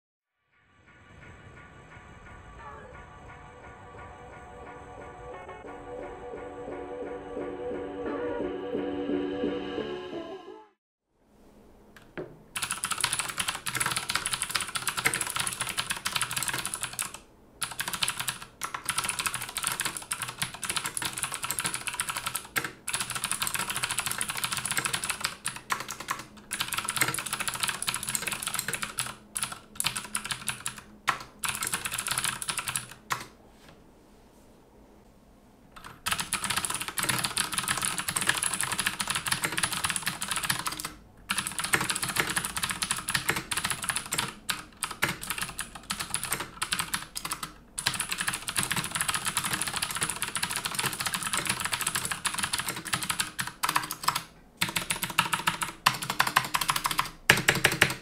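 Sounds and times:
fast mechanical keyboard typing: 0:12.6 - 0:33.3, 0:35.8 - 0:58.0.

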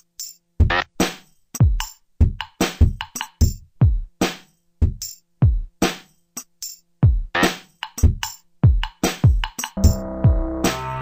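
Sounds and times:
sharp drum machine hits: 0:07.0 - 0:11.0
deep kick drums sliding down: 0:09.8 - 0:11.0.

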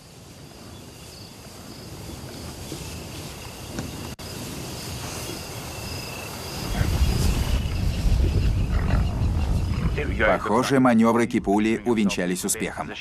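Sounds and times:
insects chirping: 0:00.0 - 0:13.0
lions growling low: 0:08.2 - 0:10.5.

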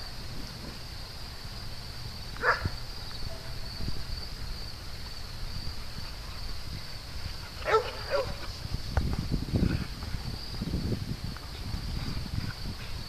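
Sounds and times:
dog barking: 0:02.4 - 0:02.7, 0:07.6 - 0:08.4.

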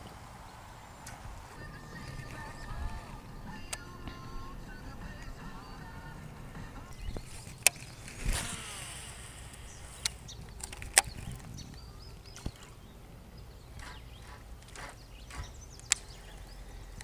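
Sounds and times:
low steady rumble: 0:00.0 - 0:17.0
fishing gear clicks and knocks: 0:06.8 - 0:08.5, 0:10.0 - 0:13.0.

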